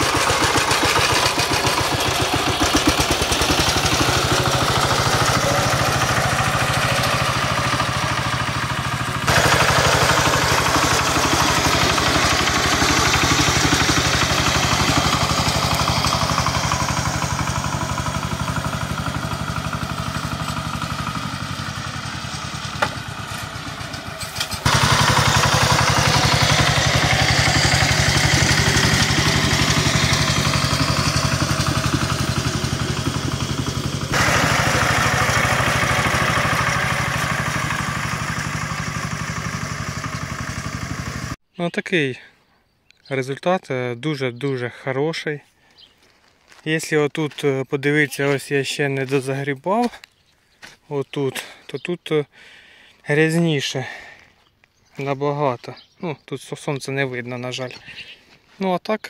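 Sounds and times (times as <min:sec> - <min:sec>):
diesel engine running under load: 0:00.0 - 0:41.4.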